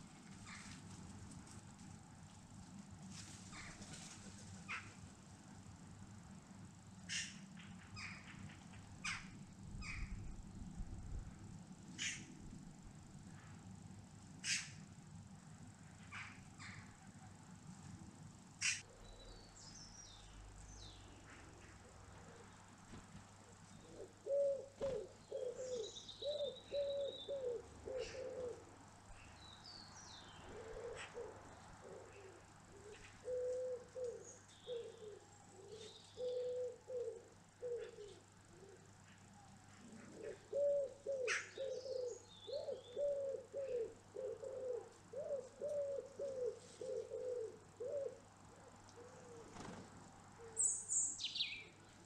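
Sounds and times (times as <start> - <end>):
songbirds chirping: 0.0 - 52.0
pigeon cooing: 23.8 - 28.7, 30.4 - 39.1, 39.7 - 49.7, 50.4 - 50.7.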